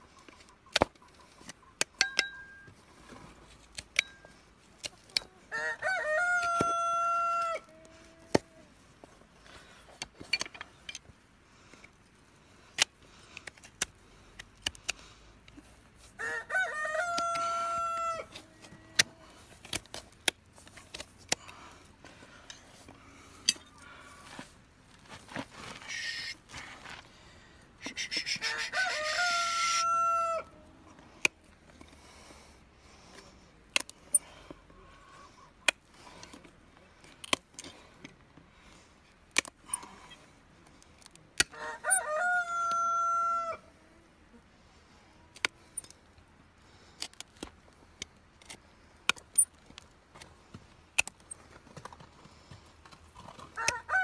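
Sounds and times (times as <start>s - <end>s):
rooster crowing: 5.5s - 8.6s, 16.2s - 19.2s, 28.4s - 30.6s, 41.5s - 43.7s, 53.6s - 54.0s
hoof knife clicking and snipping: 39.3s - 39.8s.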